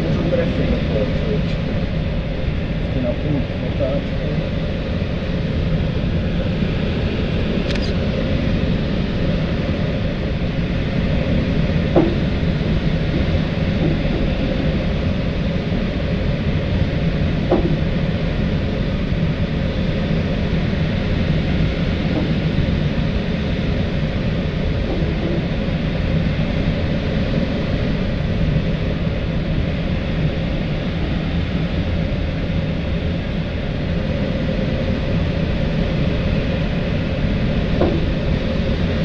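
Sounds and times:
airflow rushing over glider: 0:00.0 - 0:39.0
faint knocks: 0:11.9 - 0:12.5, 0:17.5 - 0:18.0.

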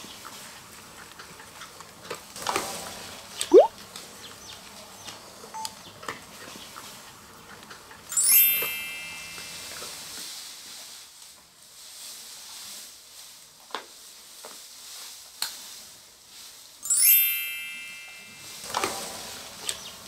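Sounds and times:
rustling of bamboo: 0:08.8 - 0:16.9, 0:17.5 - 0:20.0
bright ringing chime: 0:16.8 - 0:18.6.

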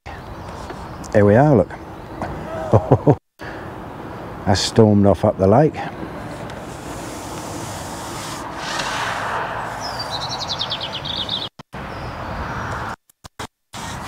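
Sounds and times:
traffic on a wet road: 0:06.0 - 0:08.6
small bird trilling: 0:08.6 - 0:11.5.

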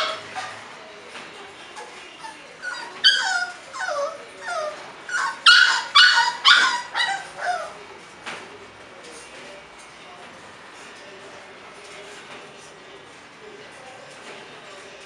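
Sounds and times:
puppies yipping and whimpering: 0:00.0 - 0:00.6, 0:02.2 - 0:07.8.

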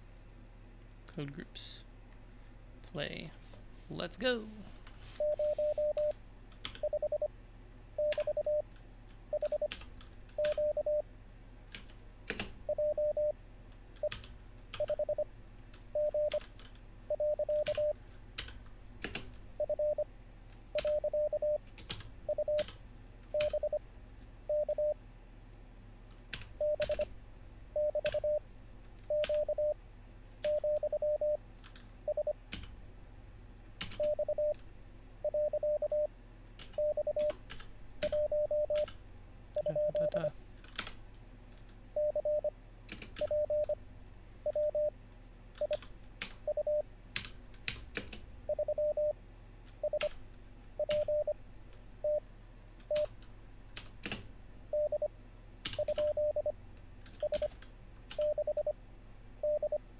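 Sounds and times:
morse code beeps: 0:05.2 - 0:06.1, 0:06.8 - 0:07.3, 0:08.0 - 0:08.6, 0:09.3 - 0:09.7, 0:10.4 - 0:11.0, 0:12.7 - 0:13.4, 0:14.8 - 0:15.3, 0:16.0 - 0:16.4, 0:17.1 - 0:18.0, 0:19.6 - 0:20.0, 0:20.8 - 0:21.6, 0:22.3 - 0:22.6, 0:23.4 - 0:23.8, 0:24.5 - 0:25.0, 0:26.6 - 0:27.0, 0:27.8 - 0:28.4, 0:29.1 - 0:29.8, 0:30.5 - 0:31.4, 0:32.1 - 0:32.4, 0:34.0 - 0:34.6, 0:35.2 - 0:36.1, 0:36.8 - 0:37.3, 0:38.0 - 0:38.9, 0:39.6 - 0:40.3, 0:42.0 - 0:42.5, 0:43.2 - 0:43.8, 0:44.4 - 0:44.9, 0:46.5 - 0:46.8, 0:48.5 - 0:49.2, 0:49.8 - 0:50.1, 0:50.8 - 0:51.4, 0:54.7 - 0:55.1, 0:55.8 - 0:56.5, 0:57.2 - 0:57.5, 0:58.2 - 0:58.8, 0:59.4 - 0:59.8.

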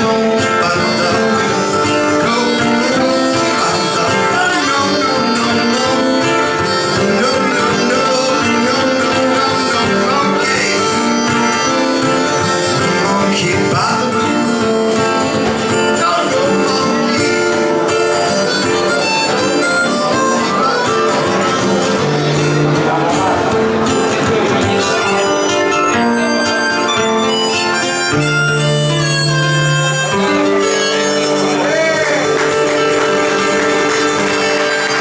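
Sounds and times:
man singing: 0:00.0 - 0:26.8
acoustic guitar: 0:00.0 - 0:35.0
harmonica: 0:00.0 - 0:35.0.

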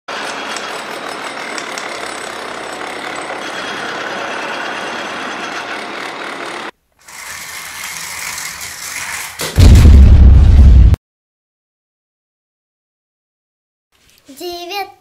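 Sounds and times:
mechanical running noise with rattle: 0:00.1 - 0:09.6.

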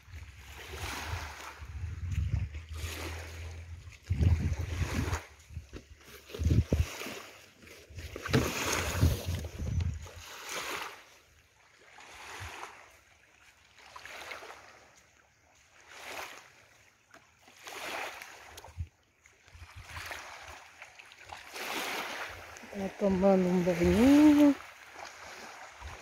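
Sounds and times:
small waves lapping on sand: 0:00.0 - 0:26.0
wind buffeting microphone: 0:00.8 - 0:02.9, 0:03.8 - 0:05.8, 0:06.4 - 0:06.9, 0:08.3 - 0:10.2.

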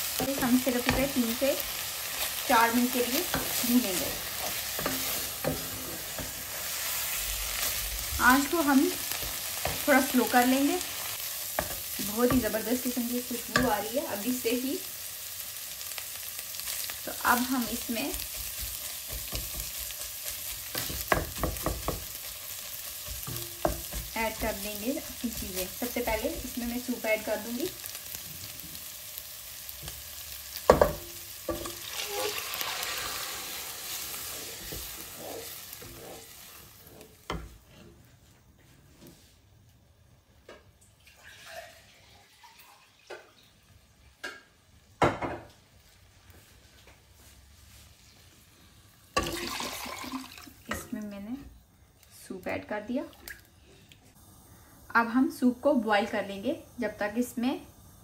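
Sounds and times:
chicken sizzling in a pot: 0:00.0 - 0:38.4, 0:40.4 - 0:58.0
wooden spatula scraping: 0:00.2 - 0:14.6
stock splashing and dripping in pot: 0:41.0 - 0:43.6, 0:49.2 - 0:50.7, 0:53.1 - 0:53.5.

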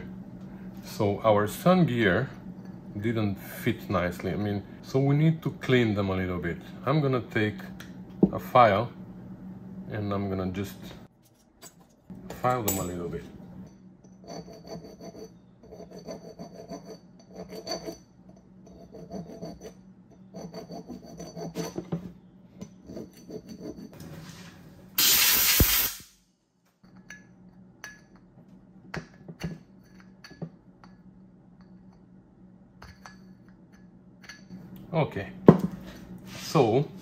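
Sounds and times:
file rasping on steel: 0:14.2 - 0:18.0, 0:18.7 - 0:21.9.

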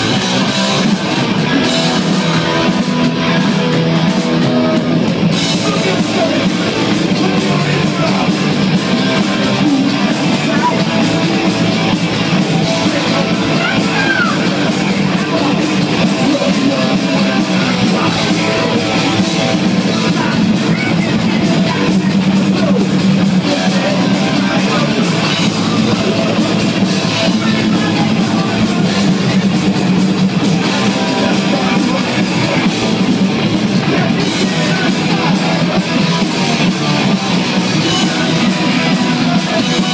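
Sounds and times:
drums: 0:00.0 - 0:39.9
electric guitars: 0:00.0 - 0:39.9
person singing: 0:00.0 - 0:39.9.

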